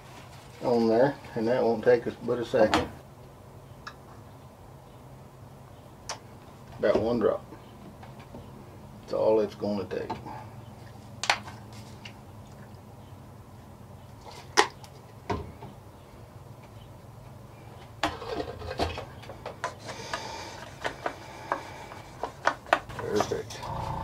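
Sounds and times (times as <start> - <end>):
rustling: 0.0 - 0.9
steady low hum: 23.0 - 24.0.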